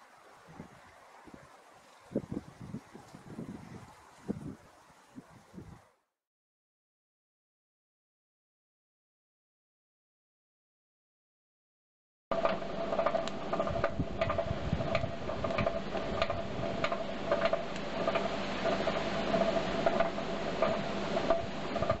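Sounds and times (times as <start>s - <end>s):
fire crackling and popping: 12.3s - 22.0s
steady hum: 12.3s - 22.0s.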